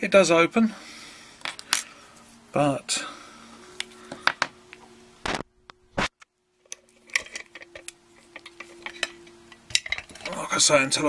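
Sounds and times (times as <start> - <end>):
metal clicks and clinks: 6.7 - 10.4.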